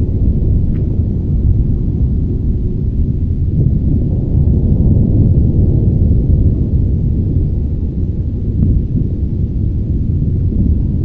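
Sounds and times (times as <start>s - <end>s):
volcanic eruption rumble: 0.0s - 11.0s.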